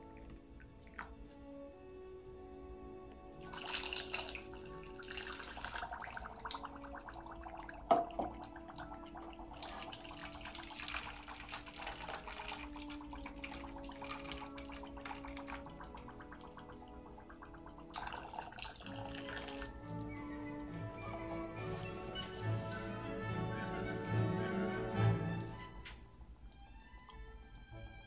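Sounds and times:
water pouring into glass jug: 3.4 - 23.0.

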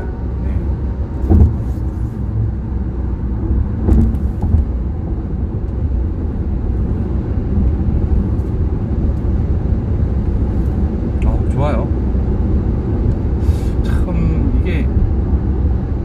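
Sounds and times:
road and engine rumble in car cabin: 0.0 - 16.0
brief knock: 1.2 - 1.7, 3.8 - 4.7.

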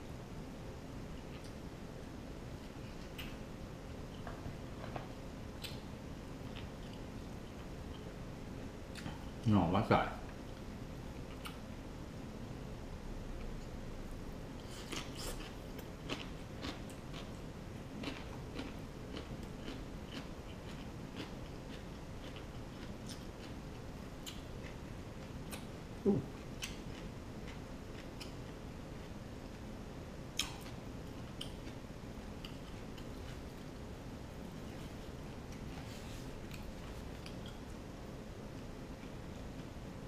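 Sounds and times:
faint chewing: 14.6 - 29.2, 30.4 - 33.7.

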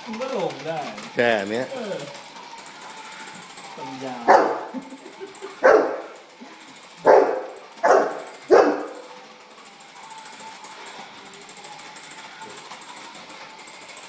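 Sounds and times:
dog barking: 4.3 - 4.7, 5.6 - 6.1, 7.0 - 9.1.

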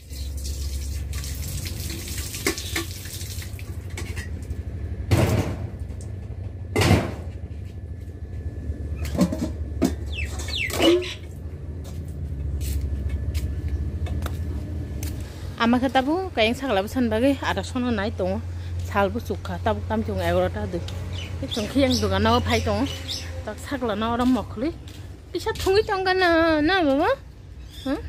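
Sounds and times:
steady low rumble: 3.4 - 10.2, 11.2 - 27.7
pots and plates clanking: 3.9 - 4.4, 9.0 - 11.2.

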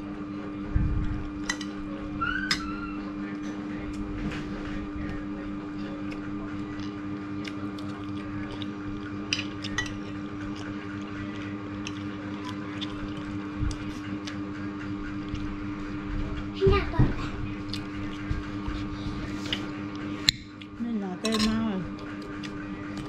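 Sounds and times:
steady low hum: 0.0 - 23.0
person chewing: 5.9 - 15.5, 17.6 - 20.8
cutlery clinking on plate: 21.2 - 21.6.

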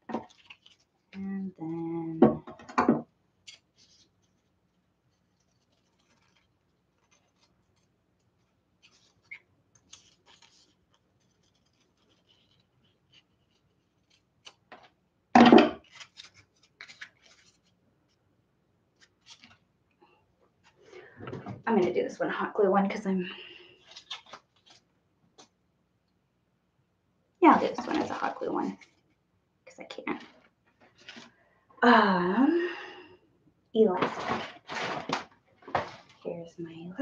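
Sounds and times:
faint paper rustling: 0.0 - 2.1, 3.4 - 15.0, 15.8 - 22.1, 23.3 - 25.6, 27.5 - 29.2, 30.0 - 31.5, 33.8 - 37.0
scissors snipping paper: 5.4 - 14.9.

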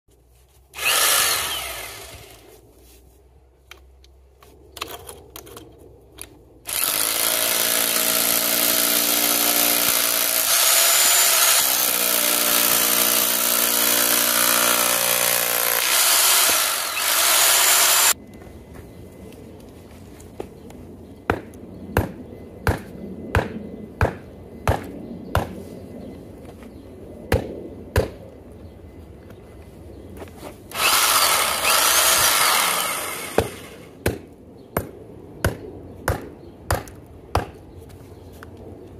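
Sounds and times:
hammer drill chiselling concrete: 0.8 - 2.3, 6.7 - 18.2, 30.7 - 33.8.

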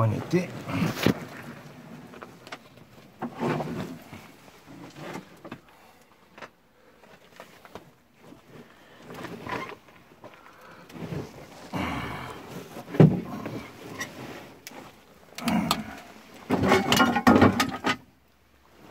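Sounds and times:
clothing scraping against rock: 0.0 - 5.5, 7.2 - 16.8.

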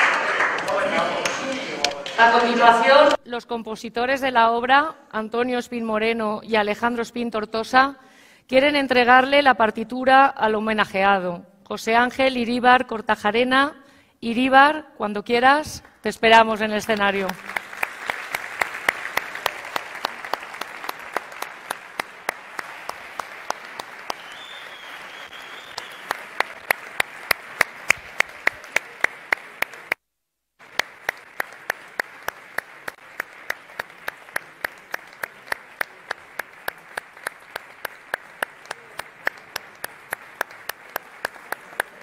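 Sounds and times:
audience clapping in rhythm: 0.0 - 3.2, 16.8 - 30.0, 30.6 - 42.0.

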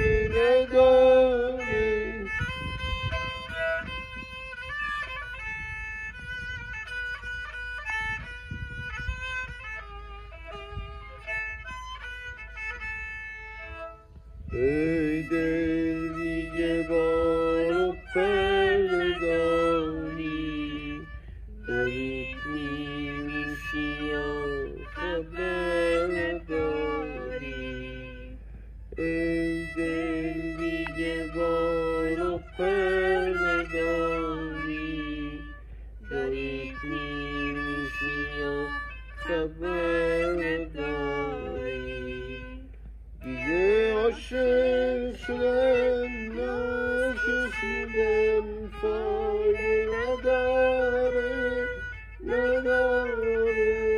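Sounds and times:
bowed fiddle playing: 0.0 - 53.9.

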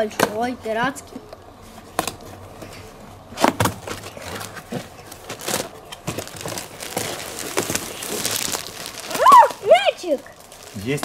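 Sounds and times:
plastic wrapping crinkling: 3.6 - 11.0.

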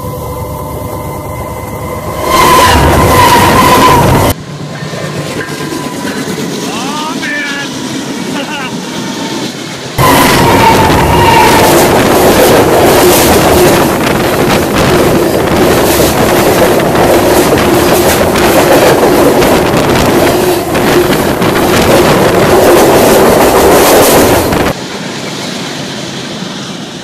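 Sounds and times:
train passing beside track: 0.0 - 27.0
train wheels rattling and rumbling: 0.0 - 27.0.

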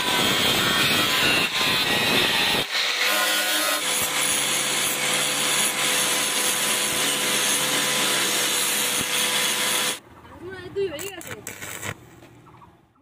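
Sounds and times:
angle grinder grinding metal: 0.0 - 10.0.

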